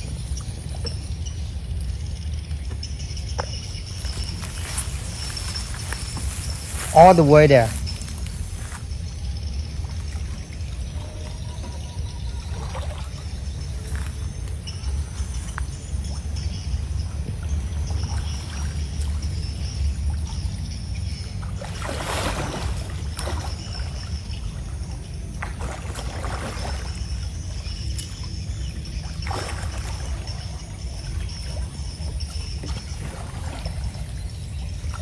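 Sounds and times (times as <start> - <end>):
steady low rumble: 0.0 - 21.8
water sloshing and splashing: 0.0 - 35.0.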